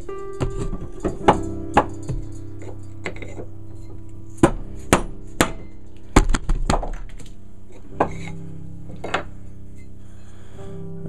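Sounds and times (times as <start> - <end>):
hammer striking wooden block: 4.4 - 7.0.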